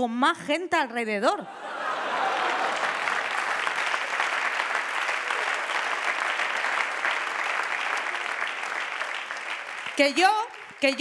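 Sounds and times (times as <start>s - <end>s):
audience applauding: 1.8s - 11.0s.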